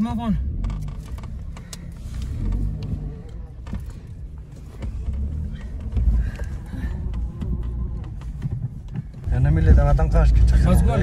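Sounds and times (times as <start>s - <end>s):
car engine and road rumble: 0.0s - 11.0s
small knocks and rattles: 0.6s - 9.3s.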